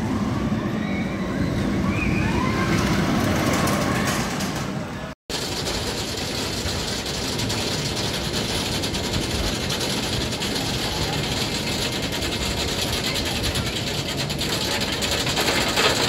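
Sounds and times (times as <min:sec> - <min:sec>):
roller coaster mechanical rumble: 0:00.0 - 0:16.0
ratchet clacking: 0:05.3 - 0:16.0.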